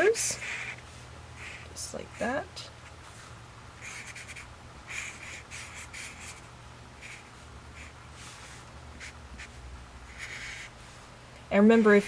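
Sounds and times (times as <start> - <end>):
felt-tip marker drawing on paper: 3.8 - 7.9.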